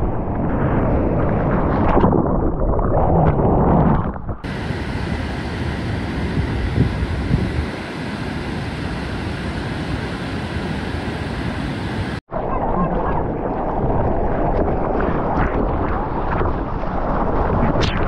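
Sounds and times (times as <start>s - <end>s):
wind on microphone: 0.0s - 18.0s.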